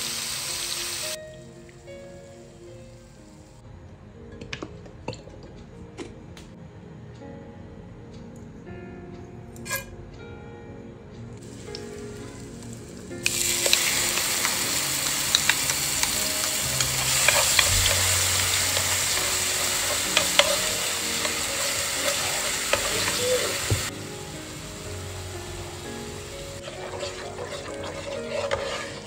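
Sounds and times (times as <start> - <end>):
hot oil sizzling in a frying pan: 0.0 - 1.2, 11.4 - 29.0
soft background music: 0.0 - 29.0.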